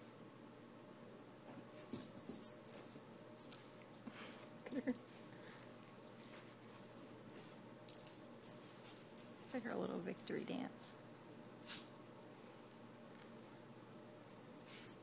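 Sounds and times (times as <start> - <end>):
dog collar tags jingling: 1.8 - 10.5, 14.0 - 15.0.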